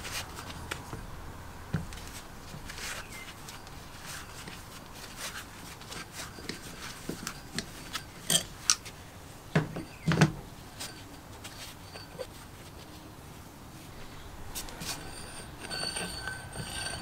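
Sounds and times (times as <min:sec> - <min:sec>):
metal rubbing and scraping: 0:01.9 - 0:08.9, 0:09.8 - 0:13.0, 0:13.9 - 0:17.0.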